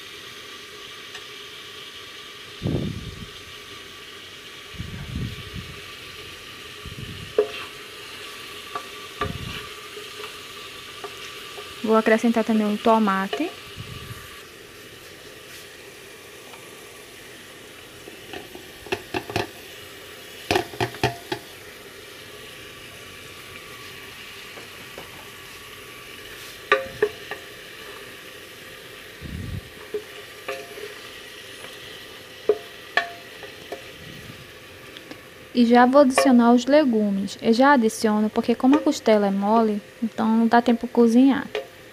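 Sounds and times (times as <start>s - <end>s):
meat sizzling in a pot: 0.0s - 41.9s
spoon knocking against pot: 7.4s - 7.6s, 18.3s - 19.6s, 20.5s - 21.5s, 26.7s - 27.4s, 29.9s - 30.9s, 32.4s - 33.9s.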